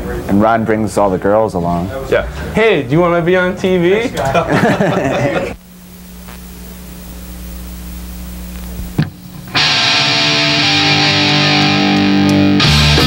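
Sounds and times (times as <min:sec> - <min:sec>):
low steady hum: 0:03.2 - 0:09.6
distorted electric guitar chord: 0:05.5 - 0:13.0
rock band playing: 0:09.5 - 0:13.0.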